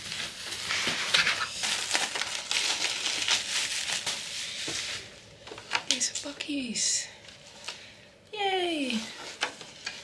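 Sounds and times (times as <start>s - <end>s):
packaging rustling and tearing: 0.0s - 5.8s.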